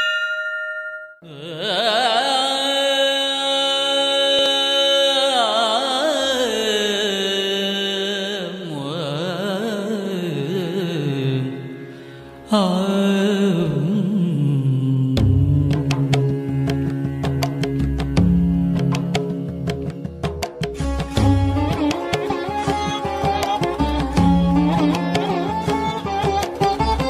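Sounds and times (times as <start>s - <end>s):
struck bell ringing: 0.0s - 1.2s
devotional music long held notes: 20.8s - 27.0s.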